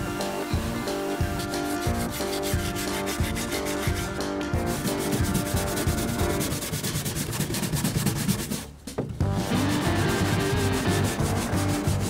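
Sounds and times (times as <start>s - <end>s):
background music: 0.0s - 12.0s
stiff brush scrubbing metal: 0.1s - 12.0s.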